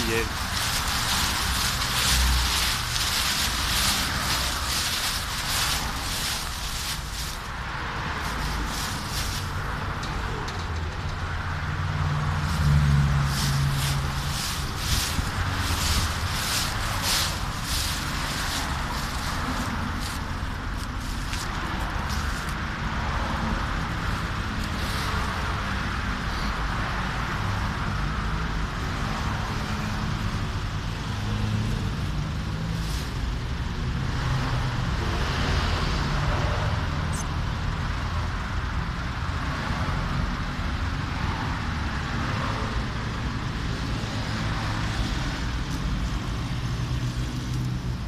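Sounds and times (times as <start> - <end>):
dry leaves crunching underfoot: 0.0 - 10.0, 12.1 - 26.6, 31.1 - 35.4
road traffic rumble: 0.0 - 48.0.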